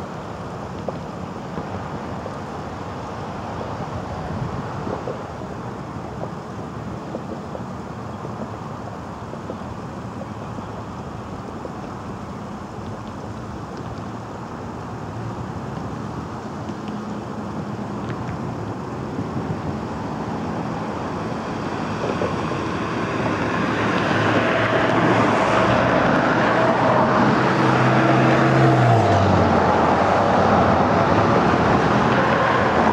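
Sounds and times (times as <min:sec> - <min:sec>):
traffic noise: 0:00.0 - 0:32.9
vehicle engine passing: 0:20.4 - 0:32.9.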